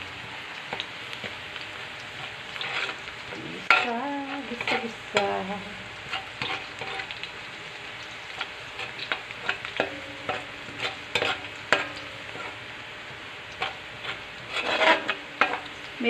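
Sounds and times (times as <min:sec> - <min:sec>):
garlic sizzling in hot oil: 0:00.0 - 0:16.0
metal spatula scraping wok: 0:02.2 - 0:07.2, 0:08.3 - 0:12.7, 0:13.5 - 0:15.8.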